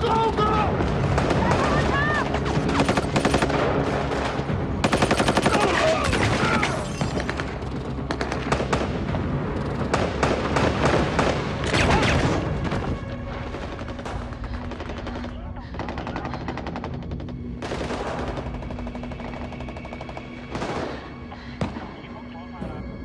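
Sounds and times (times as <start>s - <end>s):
automatic gunfire bursts: 1.0s - 6.4s.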